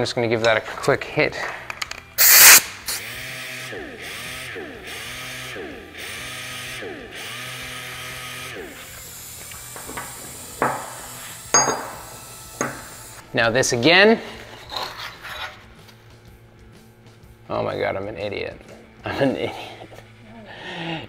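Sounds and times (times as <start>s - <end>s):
disc sander grinding metal: 3.0s - 13.3s.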